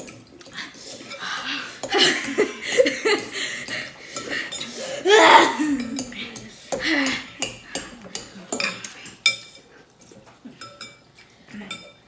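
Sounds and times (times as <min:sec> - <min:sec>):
forks clinking on glass bowls: 0:05.8 - 0:12.0.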